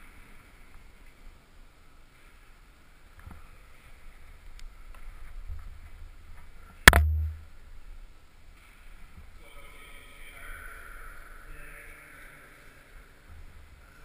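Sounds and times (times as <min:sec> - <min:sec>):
sharp knock against climbing wall: 0:06.9 - 0:07.4
low thud: 0:06.9 - 0:07.5.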